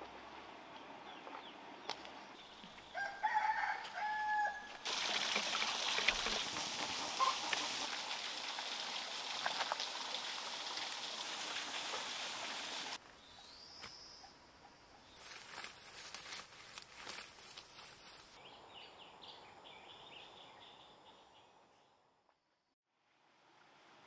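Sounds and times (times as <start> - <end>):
rooster crowing: 2.9 - 4.8
water pouring into clay pot: 4.8 - 13.0.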